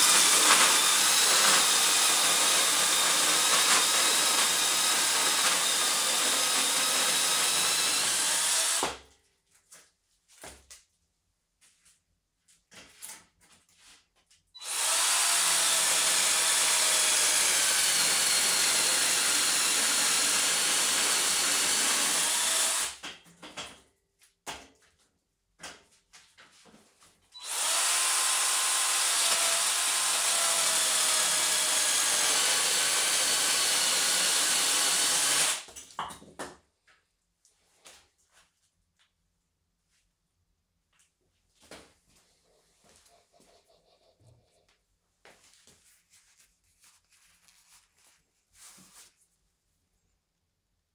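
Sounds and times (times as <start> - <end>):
chainsaw cutting wood: 0.0 - 9.0, 14.6 - 23.0, 27.4 - 35.7.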